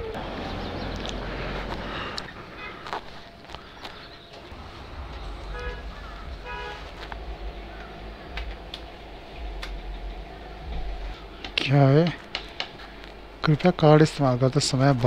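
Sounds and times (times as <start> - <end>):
low road rumble: 0.0 - 15.0
vehicle horn toots: 4.5 - 7.3
sharp clicks: 7.1 - 10.2, 11.4 - 13.2.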